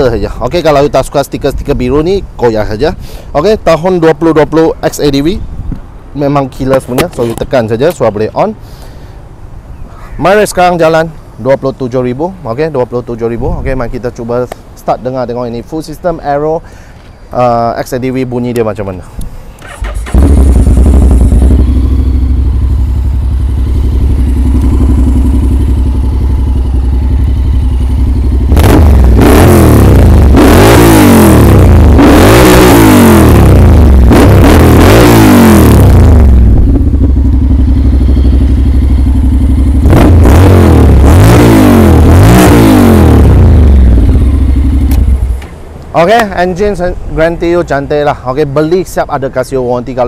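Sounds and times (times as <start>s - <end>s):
motorcycle engine starting: 19.6s - 45.6s
motorcycle engine idling and revving: 19.6s - 45.8s.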